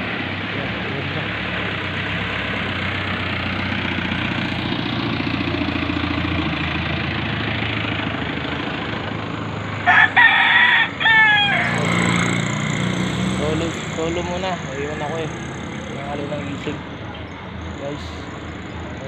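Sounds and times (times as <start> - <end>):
vehicle engine humming: 0.0 - 19.0
rooster crowing: 9.8 - 12.4.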